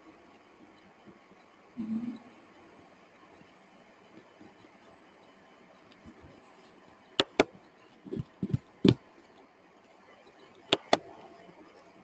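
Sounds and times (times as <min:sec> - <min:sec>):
computer mouse clicking: 0:07.2 - 0:07.5, 0:08.1 - 0:09.0, 0:10.6 - 0:11.1.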